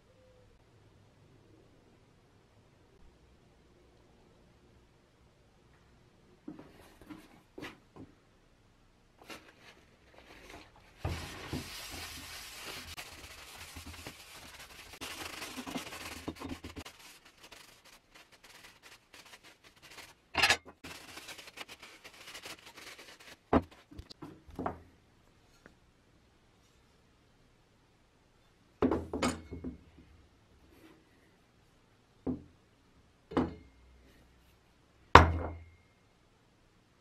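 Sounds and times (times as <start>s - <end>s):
paper towel rubbing metal: 9.8s - 23.9s.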